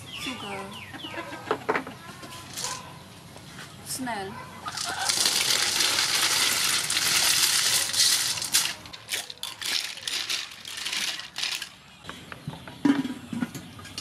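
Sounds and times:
shells clicking as stirred: 4.8 - 11.7
snail shells pouring into pot: 4.8 - 11.7.

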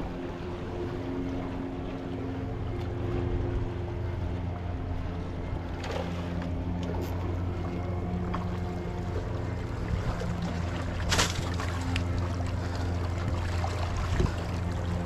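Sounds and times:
low engine drone: 0.0 - 15.0
water washing against rocks: 11.0 - 12.1.

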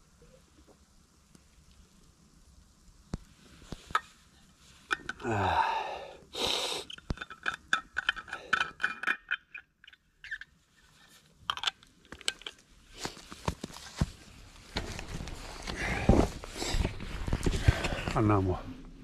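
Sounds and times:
flask cup clicks and scrapes: 4.8 - 5.2, 6.8 - 13.3.

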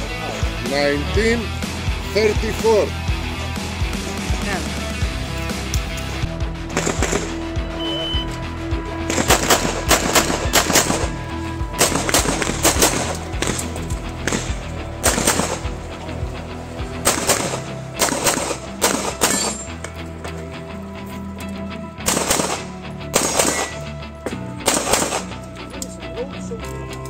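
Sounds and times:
background music: 0.0 - 27.0
handgun shots: 9.1 - 11.2, 11.8 - 15.7, 17.0 - 19.8, 22.0 - 23.9, 24.6 - 25.4.

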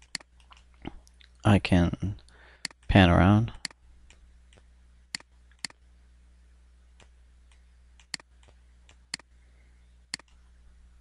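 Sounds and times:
faint low hum: 0.0 - 11.0
computer mouse clicking: 7.0 - 9.3, 10.1 - 10.4.

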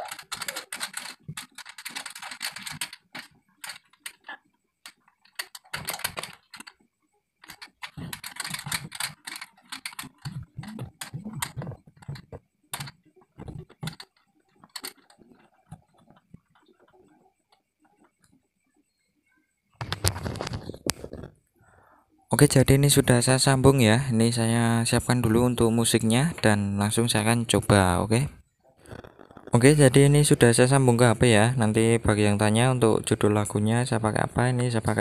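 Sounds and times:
cable connectors clicking: 0.0 - 6.8, 7.4 - 17.1.

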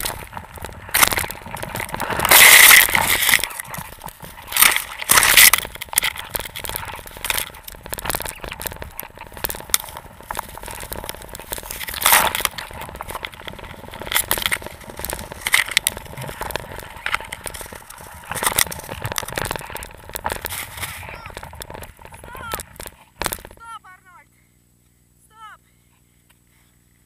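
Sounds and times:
material scraping microphone: 0.0 - 23.6
microphone handling noise: 0.0 - 23.7.

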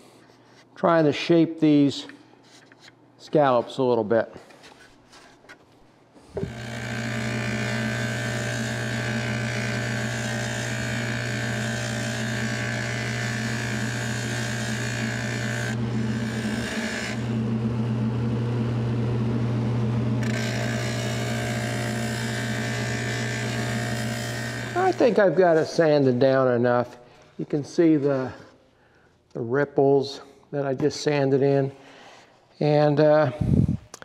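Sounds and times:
motor hum: 6.3 - 25.2
sanding drum grinding shell: 6.4 - 17.9, 20.2 - 25.8.

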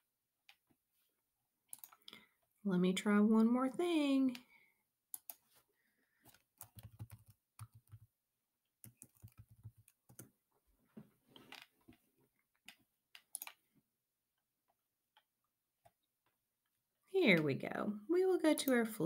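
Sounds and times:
keyboard keys clicking: 6.6 - 8.1, 8.8 - 10.3.

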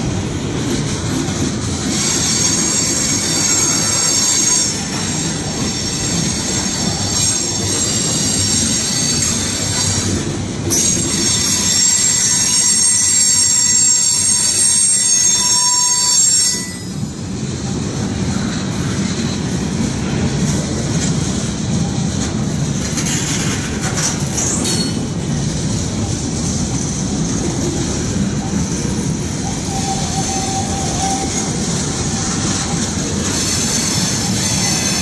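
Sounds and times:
train clanks and screeches: 0.0 - 35.0
train wheels rumbling on rail: 0.0 - 35.0
train wheels squealing: 1.8 - 17.2, 23.0 - 25.1, 27.7 - 35.0.

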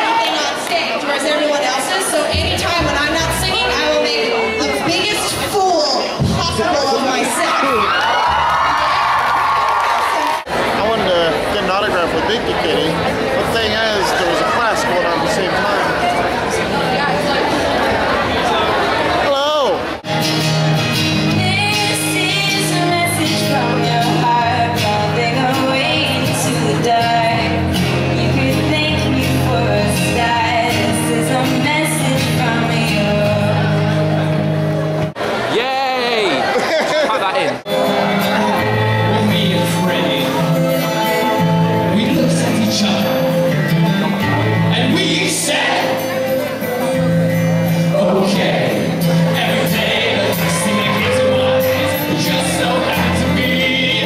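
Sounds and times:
acoustic guitar strumming: 19.8 - 35.5, 37.7 - 54.0
woman singing: 21.2 - 33.9
man singing into microphone: 37.7 - 43.6, 47.9 - 54.0.

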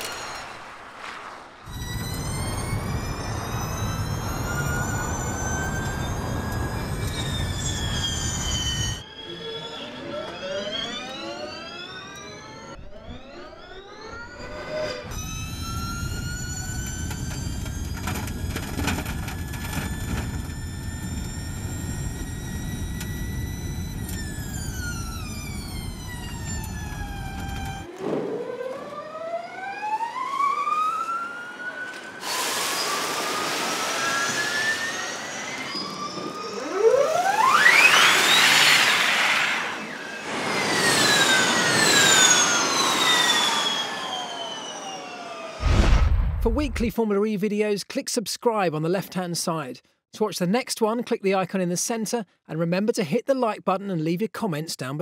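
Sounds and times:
electric race car motor whine: 1.7 - 27.9, 31.6 - 45.6.

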